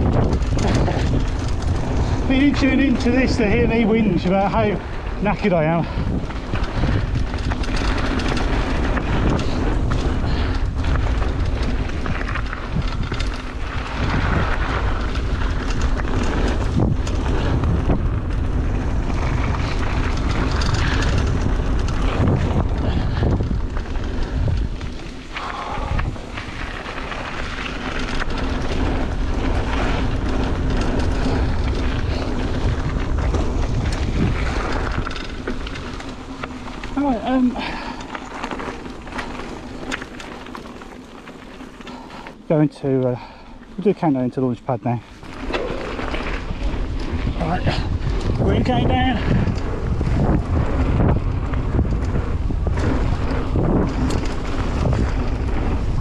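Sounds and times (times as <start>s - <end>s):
bike knocks and rattles: 0.0s - 42.3s, 45.2s - 56.0s
tyres on dirt: 0.0s - 56.0s
wind buffeting microphone: 0.0s - 56.0s.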